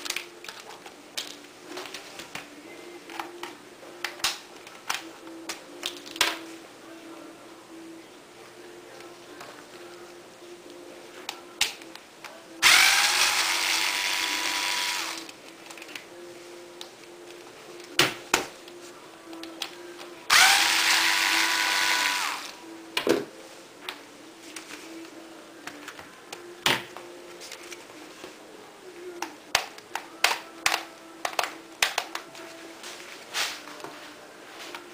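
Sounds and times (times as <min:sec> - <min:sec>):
electric screwdriver motor whine: 0:12.6 - 0:15.3, 0:20.3 - 0:22.6.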